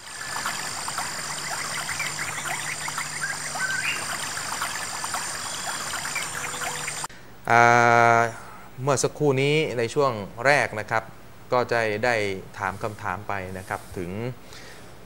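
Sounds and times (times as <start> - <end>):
high-pitched insect trill: 0.0 - 7.1.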